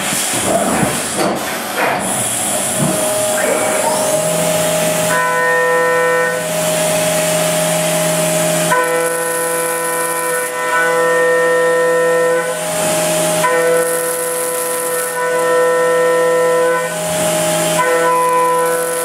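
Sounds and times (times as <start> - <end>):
hiss of coolant spray: 0.0 - 5.2
milling machine cutting whine: 1.5 - 19.0.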